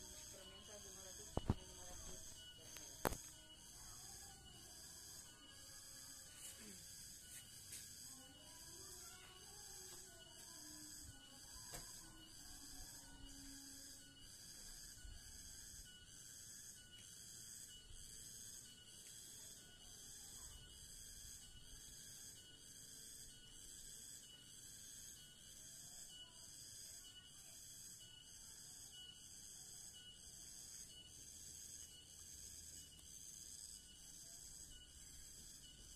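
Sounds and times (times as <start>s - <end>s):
high-pitched insect chirring: 0.0s - 35.9s.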